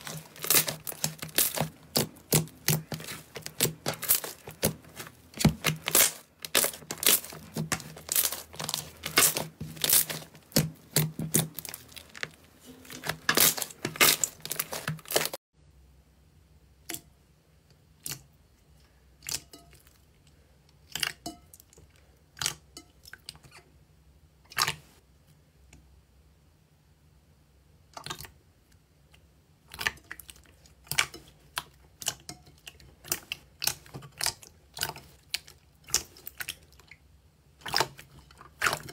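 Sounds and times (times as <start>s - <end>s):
slime crackling when stretched: 0.0s - 15.4s
slime popping and squelching: 0.0s - 15.4s.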